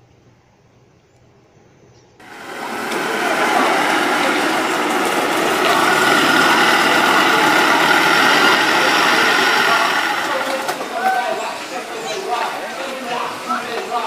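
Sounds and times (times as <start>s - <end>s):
car engine running: 2.2s - 10.7s.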